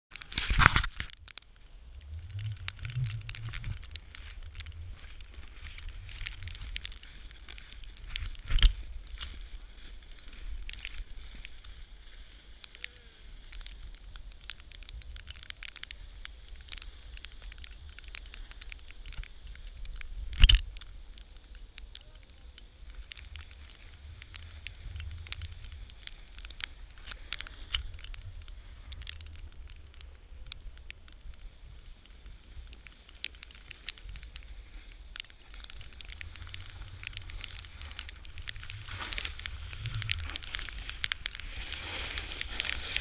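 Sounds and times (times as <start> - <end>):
camera pole crackling and clicking: 0.1 - 12.0, 13.4 - 32.1, 32.7 - 43.0
wind rumble on microphone: 0.2 - 12.0, 21.9 - 43.0.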